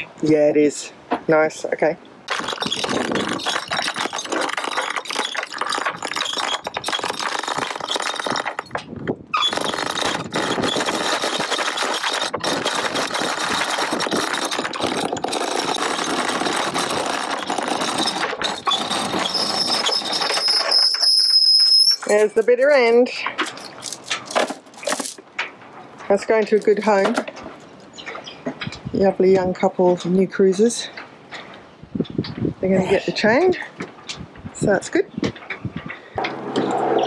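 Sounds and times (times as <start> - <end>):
anchor chain rattling: 2.3 - 27.5
steady high squeal: 17.9 - 22.1.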